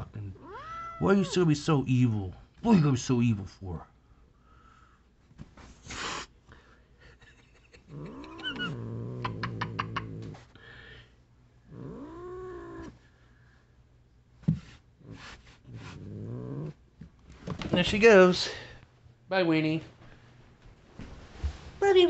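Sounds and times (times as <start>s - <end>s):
cat hissing: 0.4s - 1.4s, 5.8s - 6.4s, 7.9s - 10.4s, 15.0s - 16.8s
cat yowling growls: 0.4s - 1.4s, 7.8s - 10.4s, 11.7s - 12.9s, 15.7s - 16.8s.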